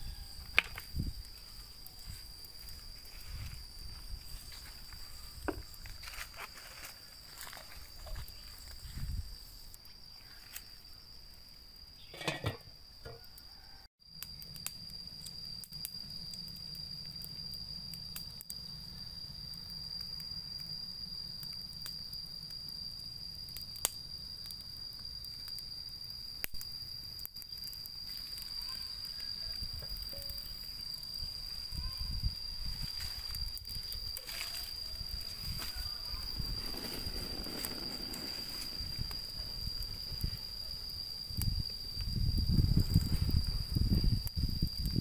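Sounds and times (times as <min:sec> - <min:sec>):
crickets trilling: 0:00.0 - 0:45.0
sharp crackles: 0:30.2 - 0:40.5.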